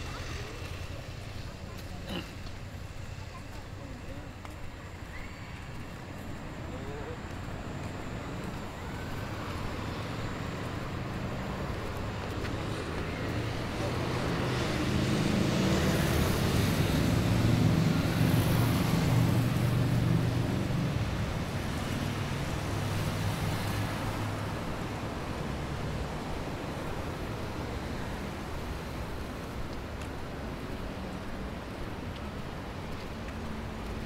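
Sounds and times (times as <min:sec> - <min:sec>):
vehicle engine passing: 0:09.2 - 0:26.3.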